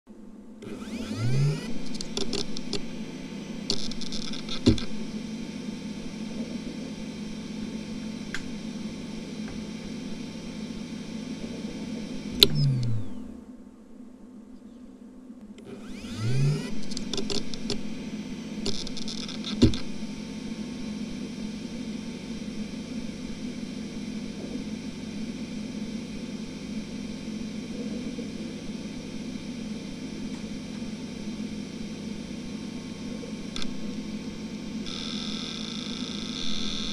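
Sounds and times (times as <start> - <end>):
hard drive spindle whine: 0.4 - 13.7, 15.4 - 36.9
hard drive seek chatter: 0.5 - 13.8, 15.2 - 36.9
hard drive click: 0.6 - 5.2, 11.4 - 13.4, 15.6 - 20.2, 33.5 - 34.1.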